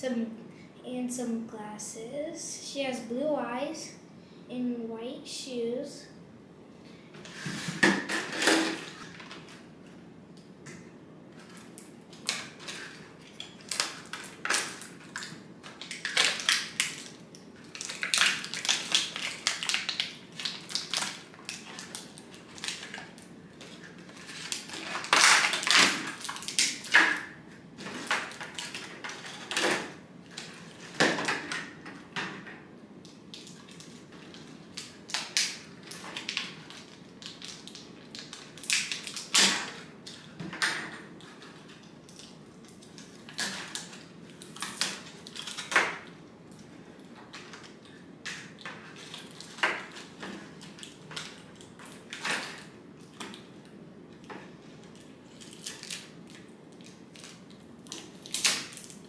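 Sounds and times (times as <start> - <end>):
plastic packaging crinkling: 11.4 - 31.7, 33.3 - 40.4, 41.2 - 53.5, 54.8 - 59.0.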